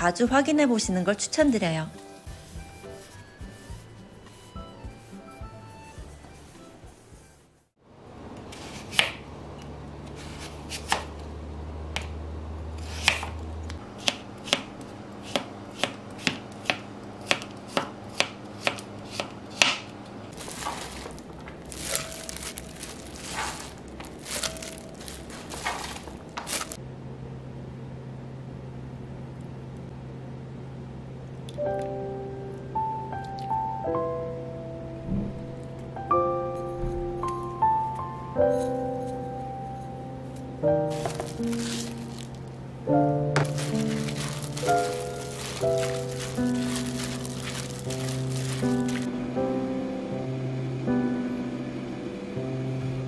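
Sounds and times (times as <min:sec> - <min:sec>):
knife chopping on cutting board: 0:08.5 - 0:09.2, 0:10.2 - 0:11.1, 0:12.8 - 0:13.4, 0:14.0 - 0:19.9.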